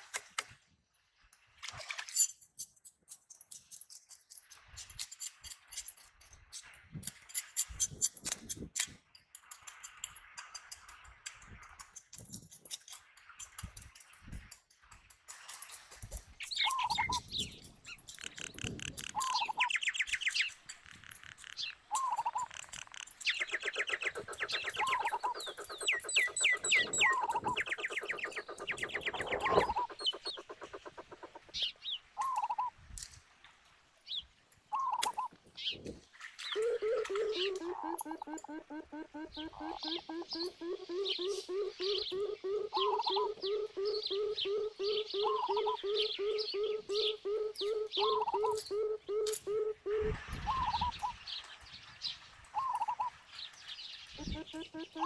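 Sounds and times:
knife scraping fish scales: 2.2s - 8.6s
birds calling and trilling: 15.4s - 32.7s, 34.1s - 55.0s.

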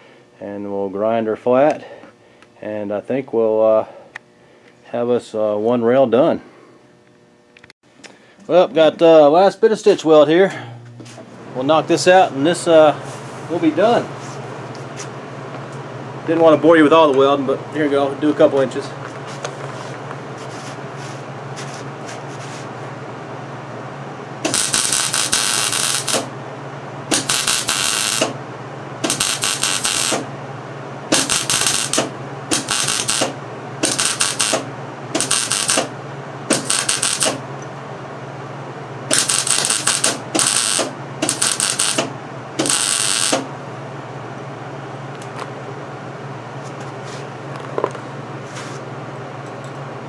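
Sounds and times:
welder low hum: 0.0s - 45.0s
welding arc crackling: 24.4s - 26.3s, 27.1s - 28.4s, 29.0s - 30.3s, 31.1s - 37.4s, 39.1s - 43.5s.

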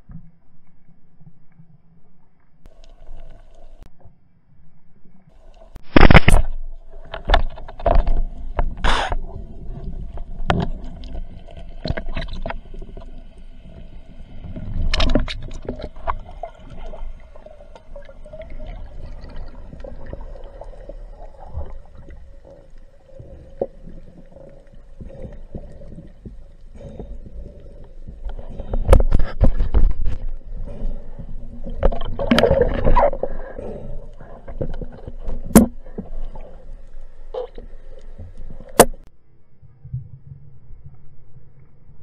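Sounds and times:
low water rumble: 0.0s - 42.0s
rubber bands plucked underwater: 31.6s - 33.2s.

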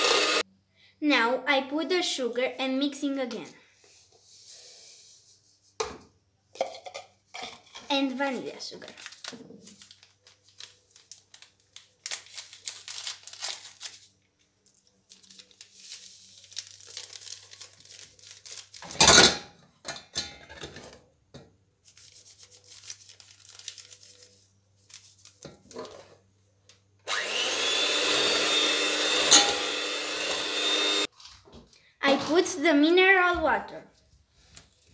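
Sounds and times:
electric hand mixer whisking: 0.0s - 0.4s, 27.1s - 31.1s
paper sachet rustling: 8.0s - 19.0s, 21.8s - 25.8s.

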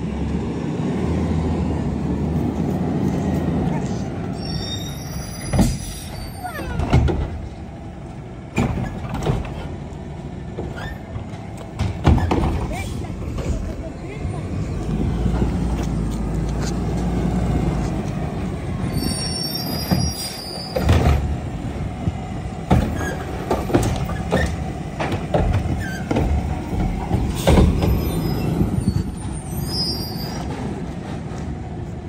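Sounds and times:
trash cart clanking and banging: 4.9s - 7.8s, 8.4s - 14.5s, 18.8s - 21.6s, 22.5s - 31.7s.

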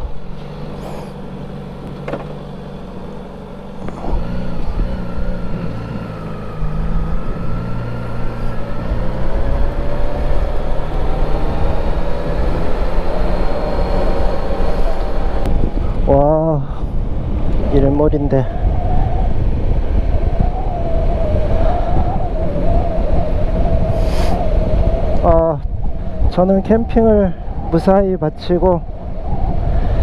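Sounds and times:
motorcycle engine pulling away: 0.4s - 15.5s.

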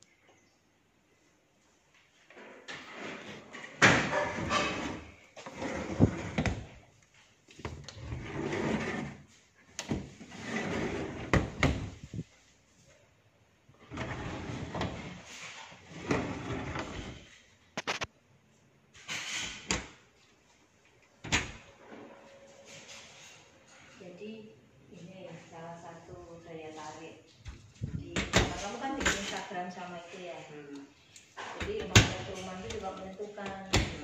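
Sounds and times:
cabinet doors rubbing and rattling: 2.4s - 6.8s, 7.6s - 12.2s, 13.8s - 17.4s, 21.2s - 21.8s, 27.5s - 29.4s, 31.5s - 34.0s.

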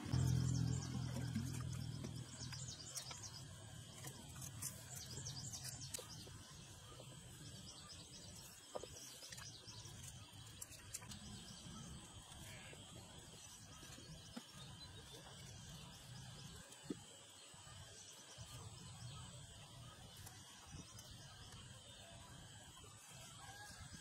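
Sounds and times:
low hum: 0.0s - 8.4s
small birds chirping: 0.0s - 23.7s.

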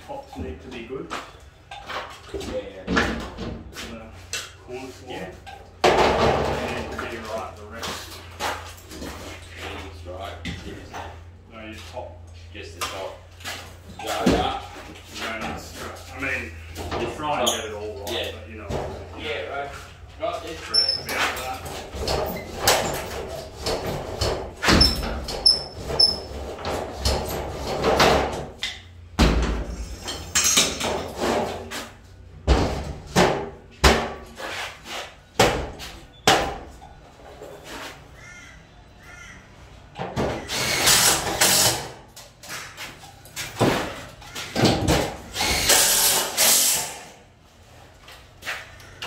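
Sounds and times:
rasping scrapes of sheets: 34.3s - 35.3s.

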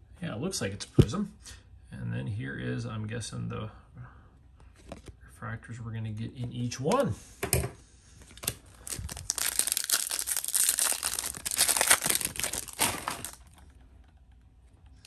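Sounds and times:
foil wrapper tearing and crinkling: 8.4s - 13.6s.

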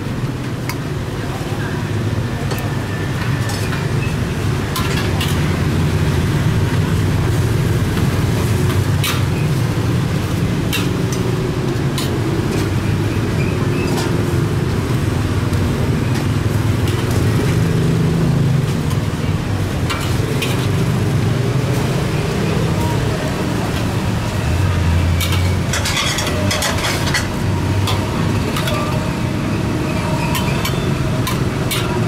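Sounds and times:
ladle scraping a wok: 25.0s - 32.0s.

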